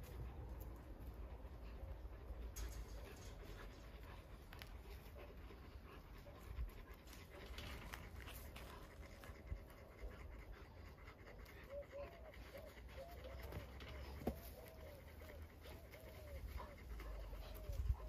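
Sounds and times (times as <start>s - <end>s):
dog panting: 0.0s - 18.0s.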